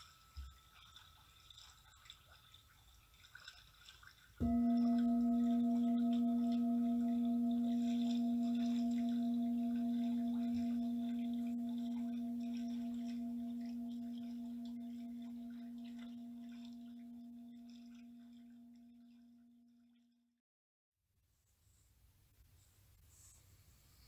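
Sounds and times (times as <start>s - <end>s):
singing bowl ringing: 4.4s - 19.6s.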